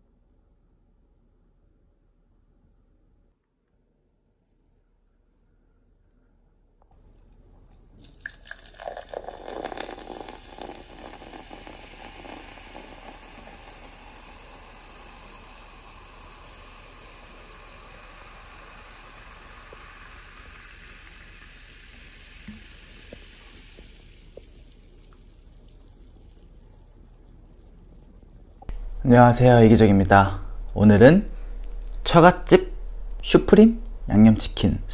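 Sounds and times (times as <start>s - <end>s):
cola pouring into glass: 7.7s - 34.5s
fizzing carbonation bubbles: 8.0s - 34.9s.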